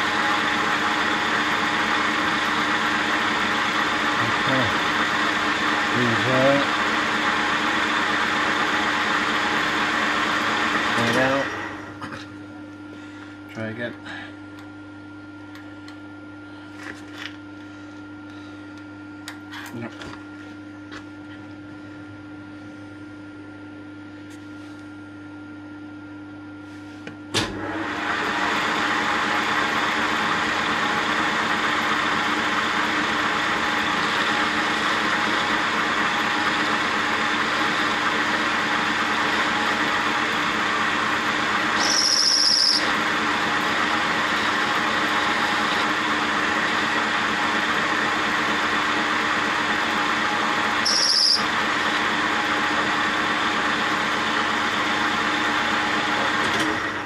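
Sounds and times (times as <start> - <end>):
metal lathe running: 0.0 - 12.0, 27.8 - 57.0
cutting tool squeal: 41.7 - 43.0, 50.8 - 51.6.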